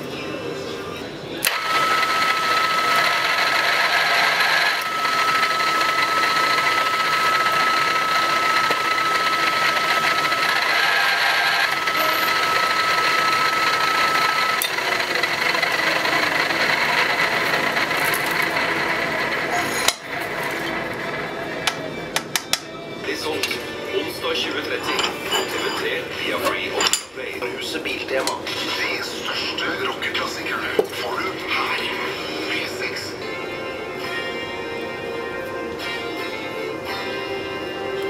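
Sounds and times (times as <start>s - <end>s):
high-pitched whine: 1.4s - 22.1s
drill press whirring: 1.4s - 22.6s.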